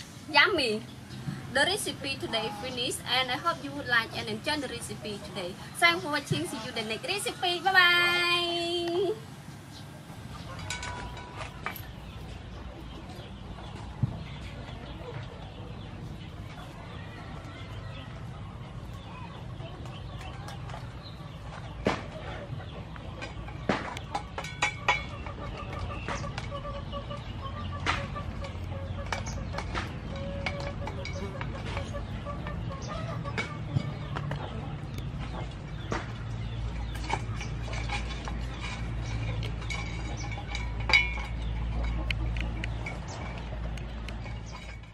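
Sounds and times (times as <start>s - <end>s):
chickens clucking: 0.0s - 44.9s
low background noise: 0.0s - 44.9s
small chirps and clicks: 36.6s - 44.9s.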